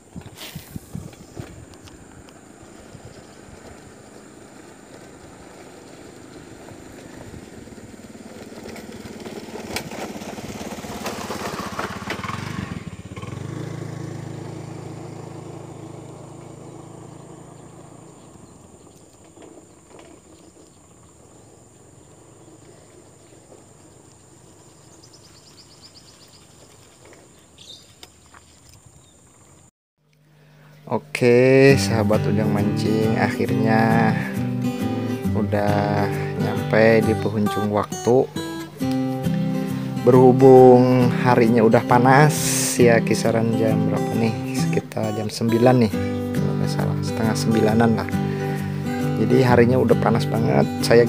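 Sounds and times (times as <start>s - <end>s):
motorcycle engine passing by: 0.5s - 29.6s, 31.2s - 51.0s
birds chirping faintly: 14.1s - 51.0s.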